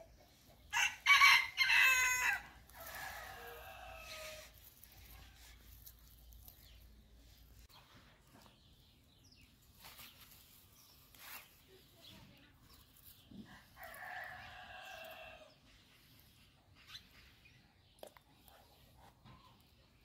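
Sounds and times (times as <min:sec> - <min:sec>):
faint rooster crowing: 0:00.7 - 0:04.8, 0:13.5 - 0:15.6.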